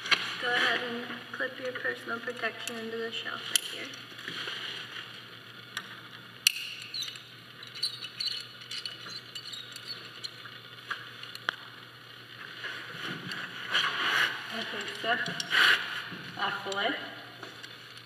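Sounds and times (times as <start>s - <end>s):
metal carabiners clicking: 3.5s - 4.0s, 6.4s - 10.5s, 14.5s - 15.6s
rope and gear rustling: 12.4s - 16.6s.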